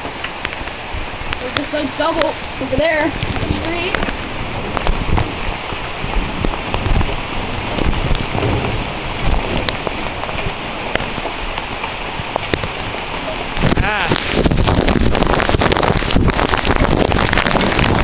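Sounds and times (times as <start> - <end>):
heavy rain pouring: 0.0 - 18.0
raindrops ticking on plastic: 0.0 - 18.0.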